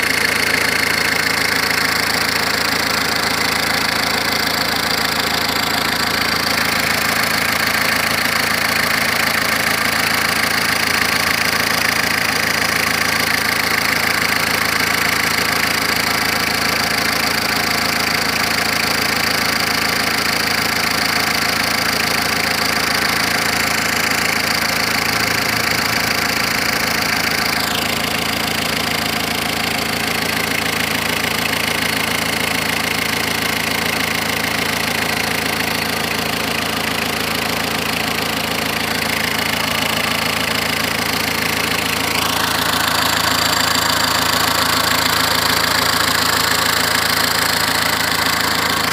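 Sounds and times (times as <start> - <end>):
diesel engine idling: 0.0 - 48.9.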